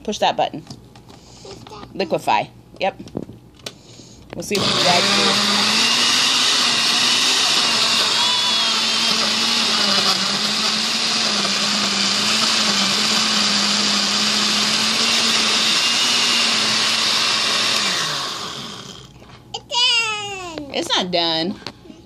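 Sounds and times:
blender motor whirring: 4.5s - 19.2s.

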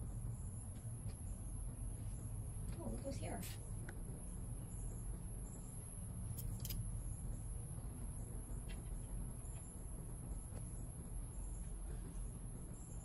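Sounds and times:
crickets trilling: 0.0s - 13.0s
low constant rumble: 0.0s - 13.0s.

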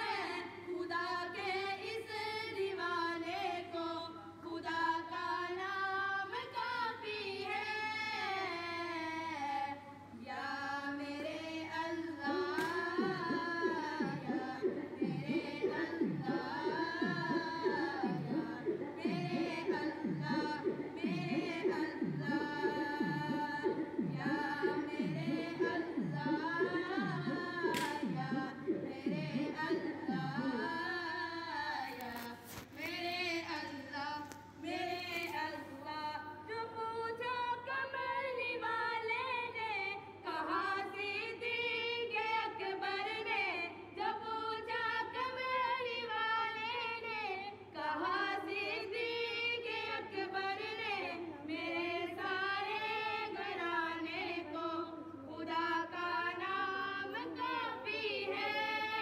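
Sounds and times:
low falling beat: 12.2s - 31.2s
high voice singing: 12.2s - 32.4s.

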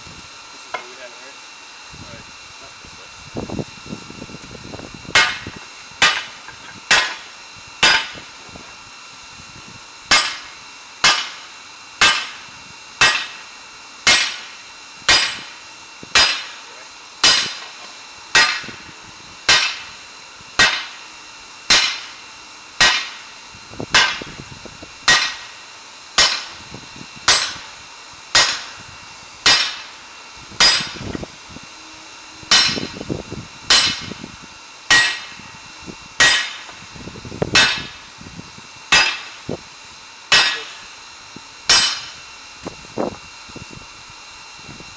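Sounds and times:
hammer striking steel on anvil: 5.1s - 5.4s, 6.0s - 8.2s, 10.1s - 11.4s, 12.0s - 12.4s, 13.0s - 13.4s, 14.0s - 14.5s, 15.1s - 15.5s, 16.2s - 16.6s, 17.2s - 18.7s, 19.5s - 19.9s, 20.6s - 21.0s, 21.7s - 22.1s, 22.8s - 23.2s, 24.0s - 24.2s, 25.1s - 25.5s, 26.2s - 26.6s, 27.3s - 27.7s, 28.3s - 28.8s, 29.4s - 30.0s, 30.6s - 31.1s, 32.5s - 33.0s, 33.7s - 34.1s, 34.9s - 35.4s, 36.2s - 36.8s, 37.6s - 37.9s, 38.9s - 39.4s, 40.3s - 40.8s, 41.7s - 42.2s.

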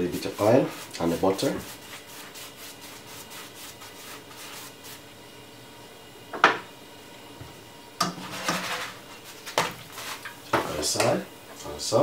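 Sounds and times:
pastry brush strokes in pan: 0.0s - 5.2s, 8.2s - 11.0s.

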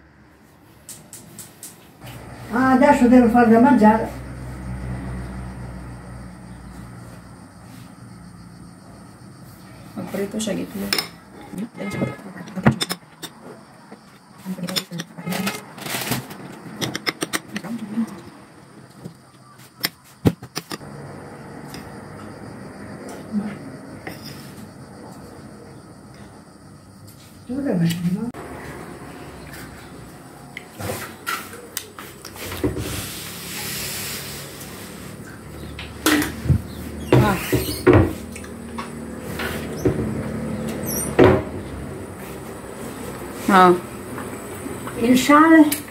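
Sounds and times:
cookware knocking and clanking: 11.9s - 13.4s
kitchen items clicking and knocking: 11.9s - 13.5s, 14.6s - 17.8s, 19.7s - 20.8s.

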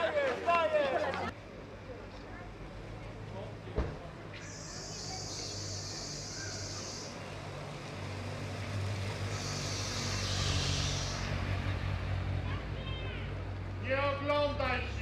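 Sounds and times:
vehicle engine running: 1.3s - 15.0s
high hiss: 9.3s - 11.4s.

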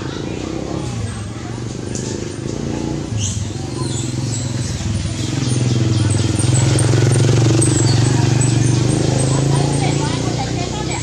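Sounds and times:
vehicle engine running: 0.0s - 11.0s
bird chirps: 3.1s - 10.3s.

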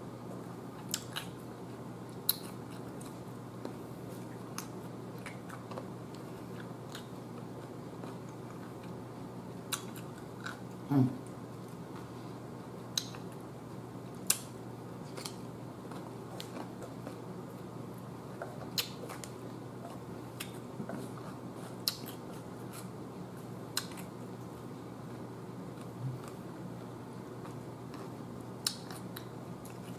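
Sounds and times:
chewing crunchy cucumber: 2.1s - 12.0s.

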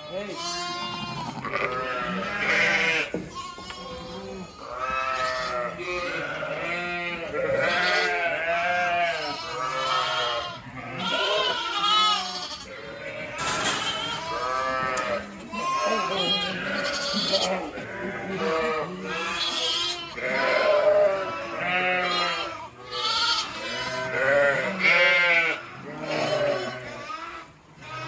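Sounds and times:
sheep and lambs bleating: 0.0s - 28.0s.

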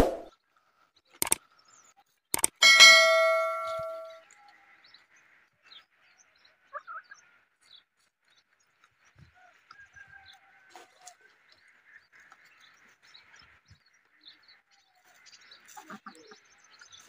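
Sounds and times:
mouse clicks: 2.4s - 2.6s
bell ding: 2.4s - 4.2s
faint chicken calls: 9.1s - 13.0s.

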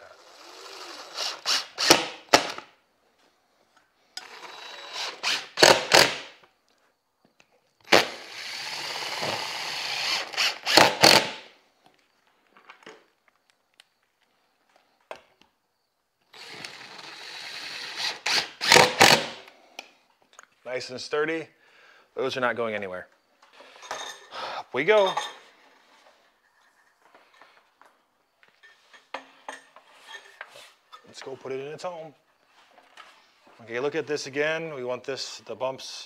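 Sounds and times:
impact driver driving screws: 1.1s - 2.6s, 4.2s - 6.4s, 7.9s - 11.5s, 16.4s - 19.5s.

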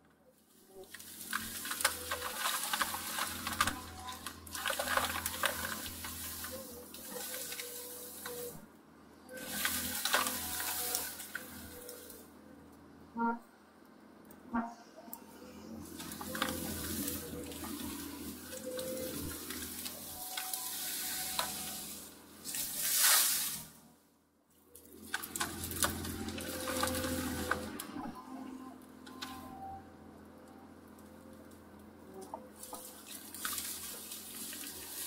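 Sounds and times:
diesel engine under load: 0.0s - 35.0s
branches snapping: 0.8s - 8.5s, 9.5s - 12.2s, 16.0s - 23.8s, 24.8s - 28.0s, 32.6s - 35.0s.

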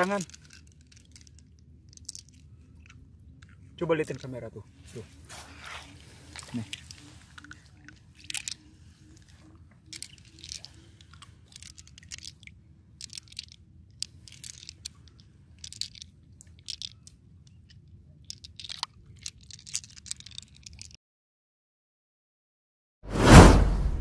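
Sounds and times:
clam shells clicking: 0.0s - 4.4s, 6.3s - 21.0s.

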